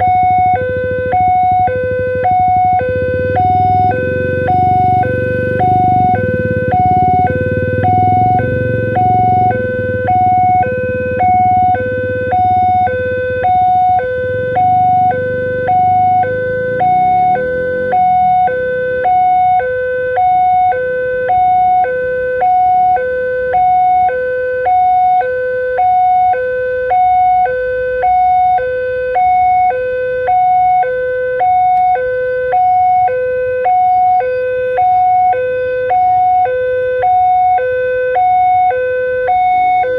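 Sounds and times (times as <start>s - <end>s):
level crossing warning siren: 0.0s - 39.9s
passing train rumble: 1.8s - 12.3s.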